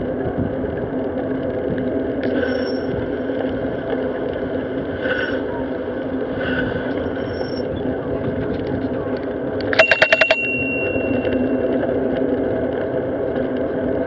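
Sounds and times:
wind buffeting: 0.0 - 9.7
tyre noise on road: 0.0 - 14.0
faint high ringing tones: 9.7 - 12.2.

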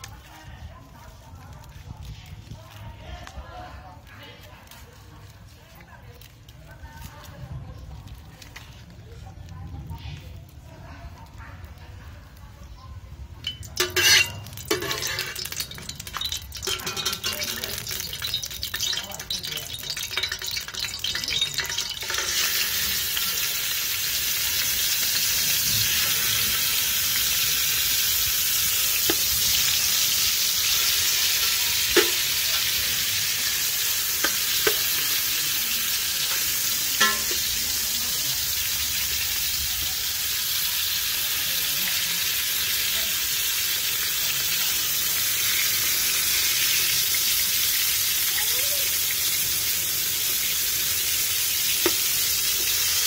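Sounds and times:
fish sizzling in hot oil: 0.0 - 53.0
metal ladle knocking pot: 13.4 - 23.2, 31.9 - 32.2, 37.0 - 37.6.

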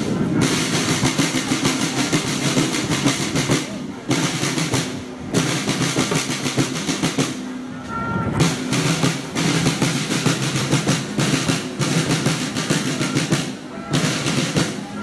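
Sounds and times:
snare drums playing a cadence: 0.4 - 15.0.

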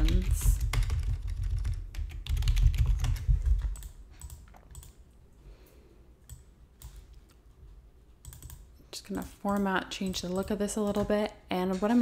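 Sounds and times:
typing on computer keyboard: 0.0 - 5.0, 8.2 - 8.7.

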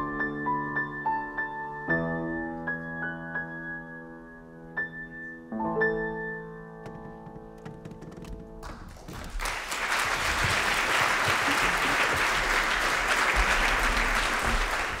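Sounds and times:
audience applause: 8.6 - 15.0.

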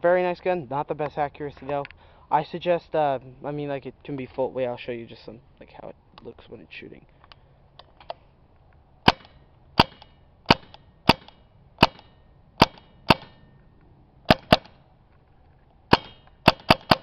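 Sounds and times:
paintball marker shots: 9.1 - 13.6, 14.3 - 14.8, 15.9 - 17.0.

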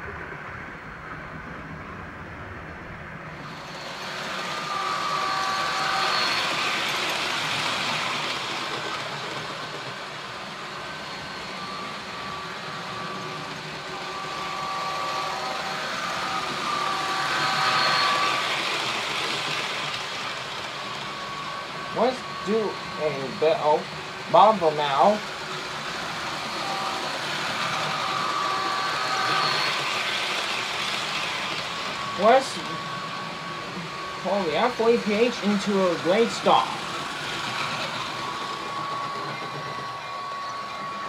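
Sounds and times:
model train rolling on track: 0.0 - 41.0
held tones: 10.6 - 41.0.

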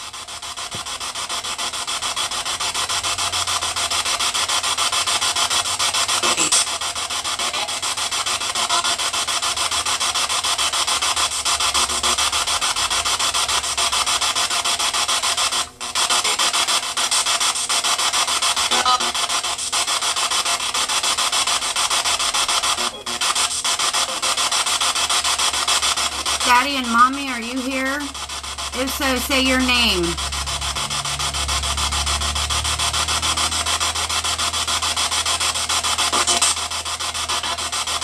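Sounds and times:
fluttering radio static: 0.0 - 38.0.

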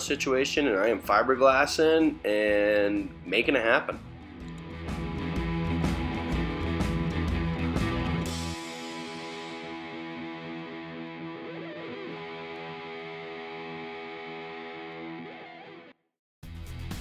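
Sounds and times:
distorted guitar chord ringing: 4.7 - 15.9.

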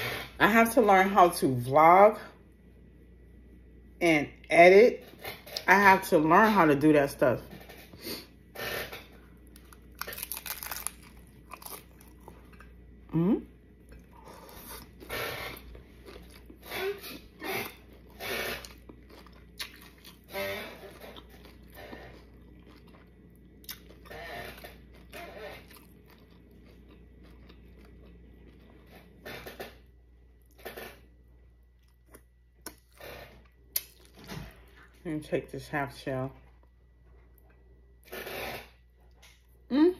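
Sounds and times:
person chewing and crunching: 8.6 - 29.8, 31.8 - 34.3.

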